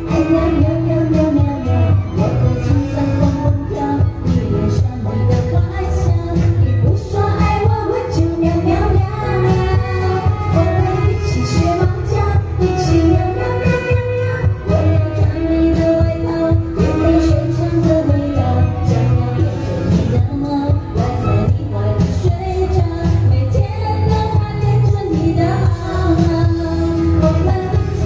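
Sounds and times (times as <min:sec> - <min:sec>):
keyboard: 0:00.0 - 0:28.0
woman singing: 0:00.0 - 0:28.0
saxophone: 0:09.0 - 0:19.9.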